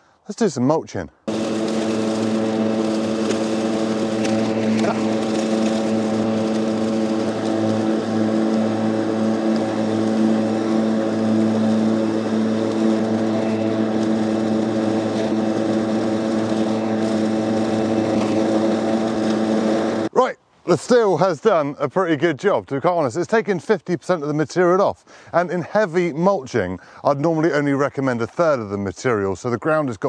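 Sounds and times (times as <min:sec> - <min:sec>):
electric lawnmower humming: 0:01.3 - 0:20.1.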